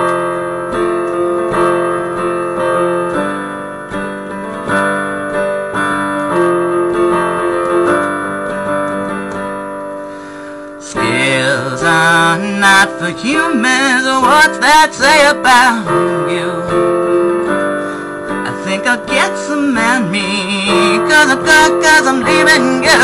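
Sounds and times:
piano chords and notes: 0:00.0 - 0:23.0.

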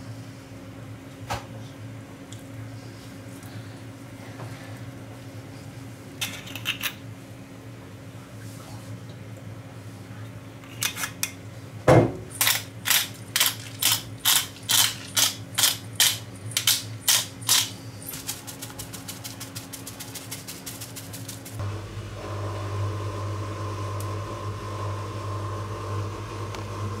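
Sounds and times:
pepper mill grinding: 0:12.4 - 0:21.6.

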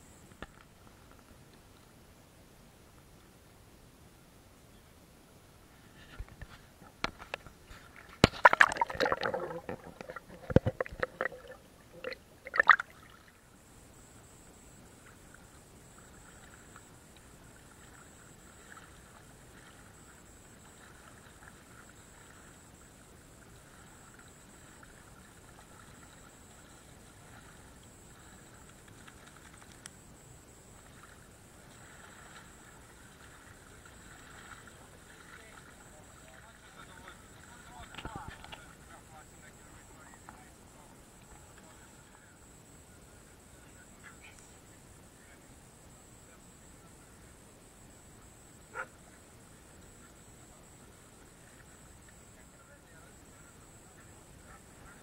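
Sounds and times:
faint steady hiss: 0:00.0 - 0:55.0
water splashing and sloshing: 0:06.1 - 0:13.5, 0:15.0 - 0:39.2.

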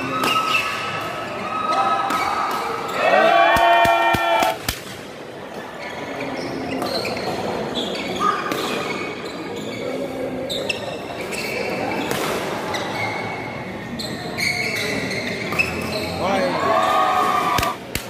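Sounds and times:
echoing murmur of hall: 0:00.0 - 0:18.0
shoes squeaking on floor: 0:05.8 - 0:12.0, 0:12.7 - 0:16.5.

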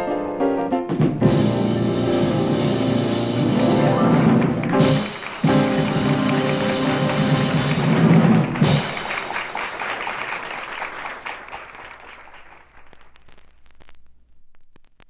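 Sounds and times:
jazz piano trio chord: 0:00.0 - 0:08.7
audience applause: 0:02.6 - 0:13.2.

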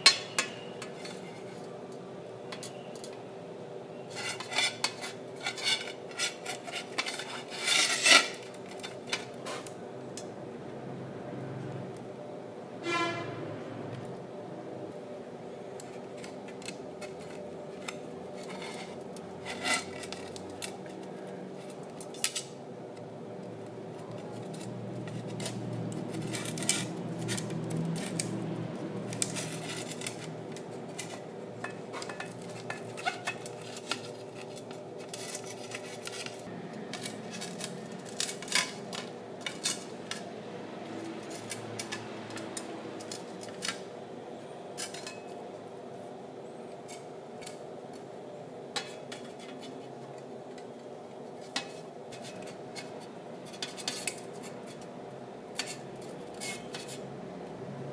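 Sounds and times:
dishes clinking: 0:00.0 - 0:01.2
steady hum: 0:00.0 - 0:57.9.

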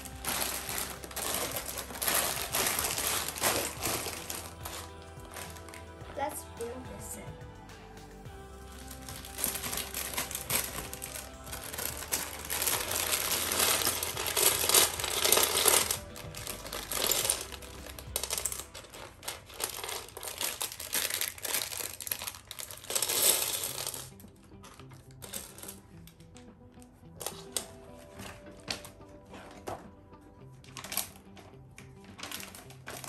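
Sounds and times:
plastic bag crinkling: 0:00.0 - 0:06.4, 0:08.7 - 0:25.9, 0:30.7 - 0:33.0
plastic pieces clicking: 0:09.1 - 0:25.8
plastic pieces clattering onto tray: 0:09.2 - 0:24.2.

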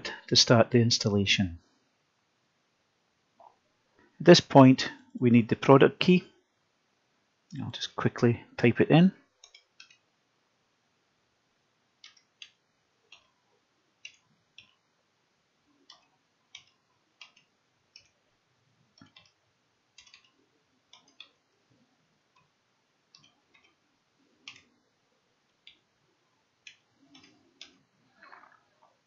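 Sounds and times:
keystrokes on a computer keyboard: 0:09.4 - 0:10.1, 0:12.0 - 0:13.4, 0:14.0 - 0:14.8, 0:15.8 - 0:18.2, 0:18.9 - 0:21.4, 0:22.3 - 0:23.8, 0:24.4 - 0:24.7, 0:26.6 - 0:27.8.

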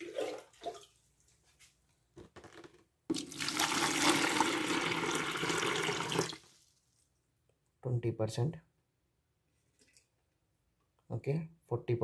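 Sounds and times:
water pouring into a plastic bucket: 0:00.0 - 0:01.0, 0:03.1 - 0:06.8.

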